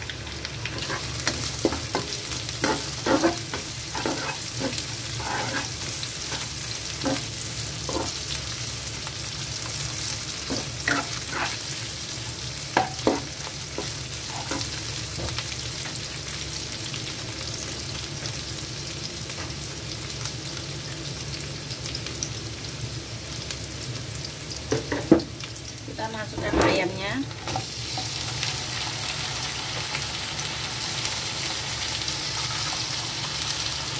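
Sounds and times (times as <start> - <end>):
aromatics sizzling in oil: 0.0 - 33.9
utensil scraping against pan: 0.8 - 7.3, 7.9 - 8.2, 10.5 - 11.7.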